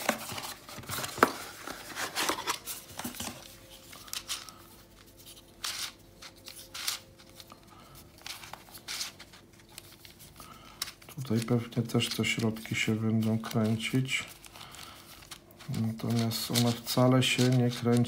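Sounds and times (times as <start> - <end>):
cardboard box rustling and scraping: 0.0 - 3.8.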